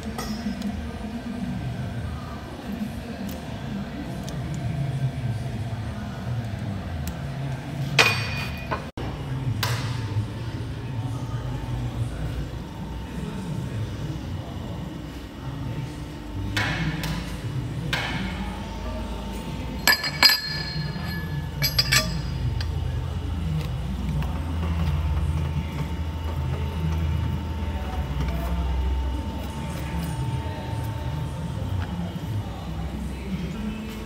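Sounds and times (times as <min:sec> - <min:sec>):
low machine hum: 0:00.0 - 0:34.0
steel parts clinking: 0:19.8 - 0:22.8.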